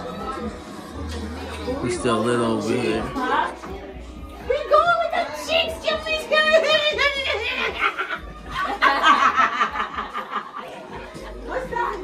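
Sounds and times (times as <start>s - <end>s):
people laughing: 6.6s - 12.0s.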